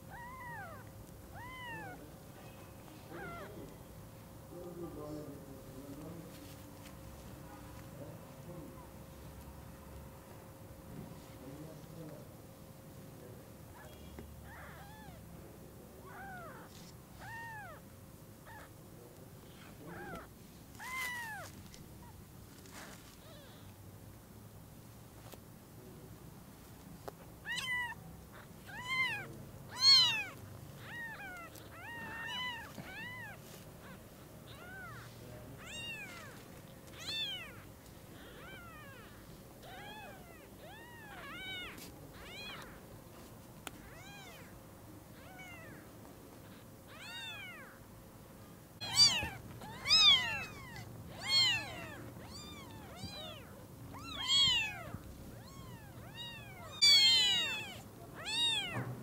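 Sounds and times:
kittens mewing: 0.0s - 3.9s, 13.7s - 18.8s, 19.4s - 23.8s, 27.1s - 42.9s, 43.6s - 47.8s, 48.8s - 59.0s.

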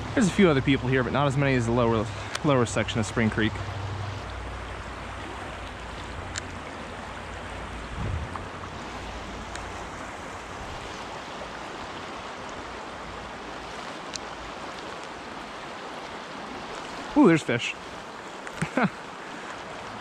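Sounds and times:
stream rushing over rocks: 0.0s - 20.0s
faint clicks: 2.2s - 2.5s, 14.0s - 15.2s.

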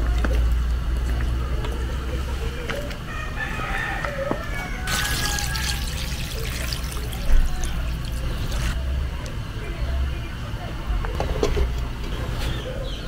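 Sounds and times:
rooster crowing: 3.1s - 6.4s
water pouring into a pot: 4.9s - 8.8s.

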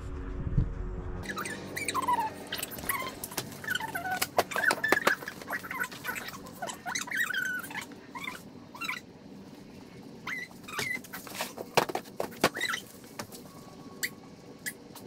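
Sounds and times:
small animal squeaky calls: 1.2s - 9.1s, 10.2s - 11.4s, 12.5s - 12.9s, 14.0s - 15.0s.

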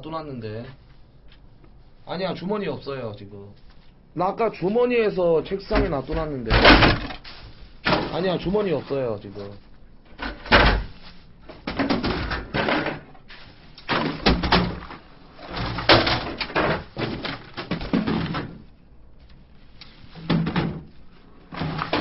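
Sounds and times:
objects knocking and clattering: 5.7s - 8.3s, 10.1s - 13.2s, 13.8s - 18.7s, 20.1s - 22.0s.

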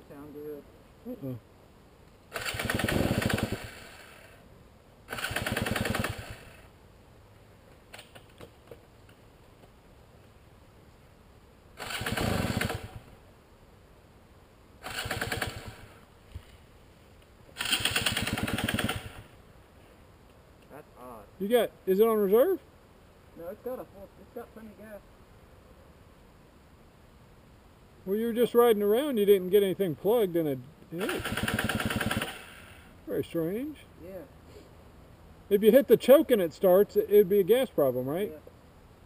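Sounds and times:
dirt bike engine starting and dying: 2.3s - 4.4s, 5.1s - 6.7s, 11.8s - 13.1s, 14.8s - 16.0s, 17.6s - 19.3s, 31.0s - 32.8s.

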